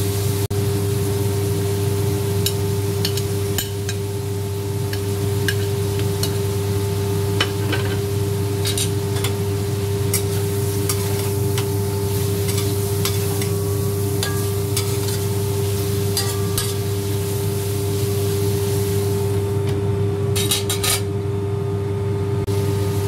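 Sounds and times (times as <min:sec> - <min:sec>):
food sizzling: 0:00.0 - 0:19.6
steady low hum: 0:00.0 - 0:23.0
metal spatula scraping a wok: 0:08.6 - 0:09.4, 0:10.1 - 0:13.6, 0:14.2 - 0:17.0, 0:20.4 - 0:21.1.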